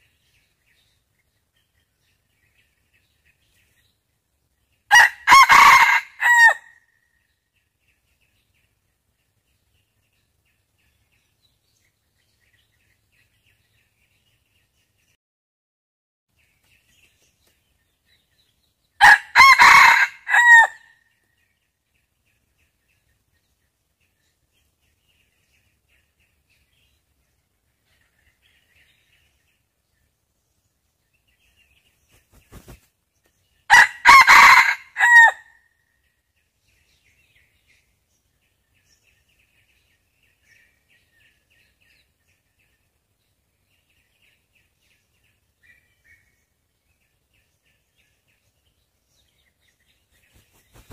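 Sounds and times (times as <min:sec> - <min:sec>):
small birds chirping: 0:00.0 - 0:04.9, 0:06.7 - 0:15.2, 0:16.3 - 0:19.0, 0:20.8 - 0:33.7, 0:35.5 - 0:50.9
rooster crowing: 0:04.9 - 0:06.7, 0:19.0 - 0:20.9, 0:33.7 - 0:35.5.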